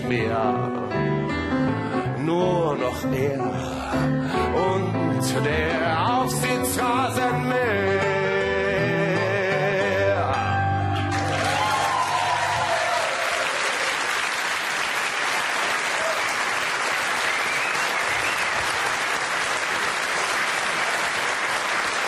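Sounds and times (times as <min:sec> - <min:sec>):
grand piano chords: 0:00.0 - 0:11.6
audience applauding: 0:11.0 - 0:22.0.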